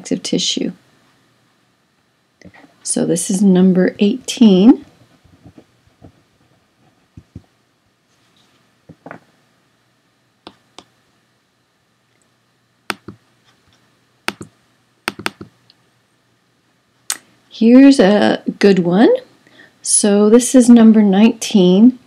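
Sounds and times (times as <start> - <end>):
laptop clicks: 12.9 - 13.2, 14.3 - 14.5, 15.1 - 15.6.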